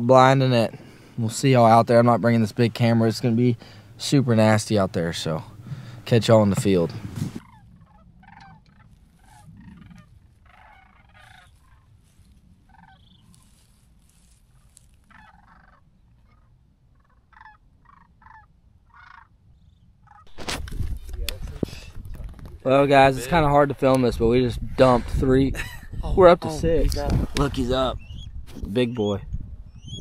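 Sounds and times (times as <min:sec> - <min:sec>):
cranes calling: 0:04.7 - 0:20.5.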